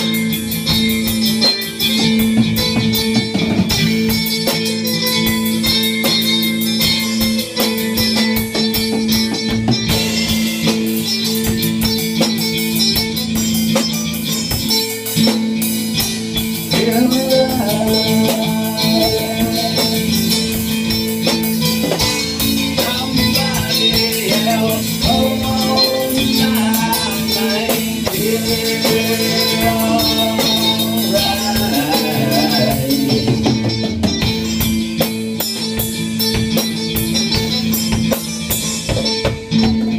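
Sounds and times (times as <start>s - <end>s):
band playing live: 0.0s - 39.9s
wavering melody line: 9.9s - 35.0s.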